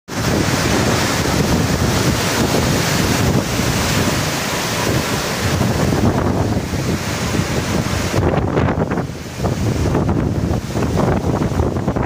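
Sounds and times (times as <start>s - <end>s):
wind and rain rushing: 0.1s - 12.0s
wind buffeting microphone: 0.1s - 12.0s.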